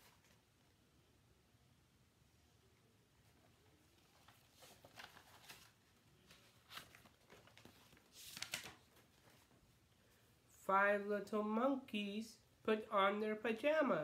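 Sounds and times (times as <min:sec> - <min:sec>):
page turning: 0:04.0 - 0:09.6
paper rustling and scraping: 0:04.0 - 0:09.6.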